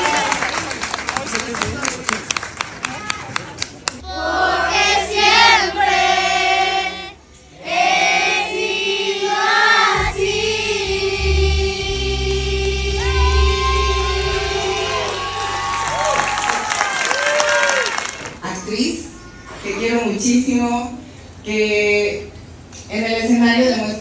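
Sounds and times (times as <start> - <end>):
children singing in unison: 4.0 - 15.2
backing track with heavy bass: 9.7 - 16.4.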